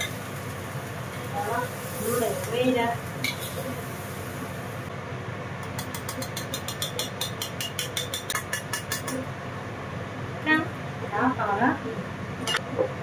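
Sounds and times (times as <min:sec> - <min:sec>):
kitchen fan humming: 0:00.0 - 0:13.0
metal spatula scraping wok: 0:01.1 - 0:04.0.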